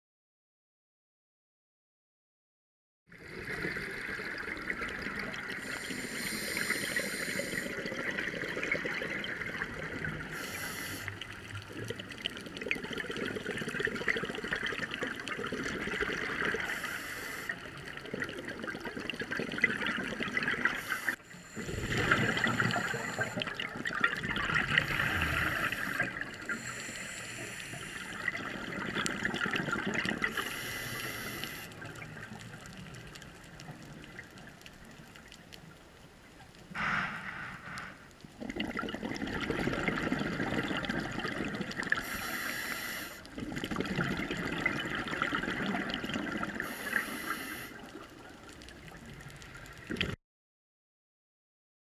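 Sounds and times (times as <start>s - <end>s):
exhaled bubbles rushing: 3.1s - 16.9s, 17.6s - 26.7s, 27.8s - 30.4s, 36.8s - 42.1s, 43.3s - 46.8s
underwater hiss: 5.2s - 11.6s, 16.2s - 18.0s, 20.6s - 23.7s, 24.4s - 28.8s, 30.2s - 32.1s, 36.7s - 38.2s, 41.9s - 43.4s, 46.6s - 48.1s
regulator breathing: 20.8s - 23.5s, 24.8s - 28.3s, 30.3s - 31.8s.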